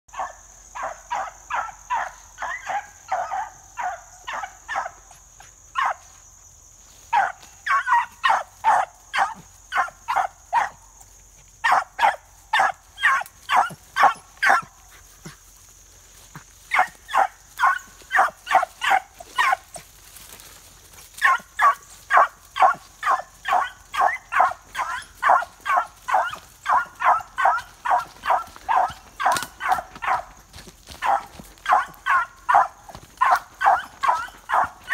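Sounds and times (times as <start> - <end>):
hound baying sharp barks: 11.6 - 14.7, 21.2 - 30.3, 31.0 - 34.9.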